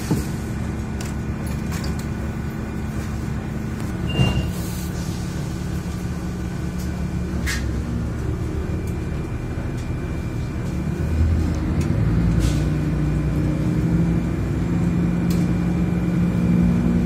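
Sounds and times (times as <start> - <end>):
railcar engine running: 0.0 - 17.0.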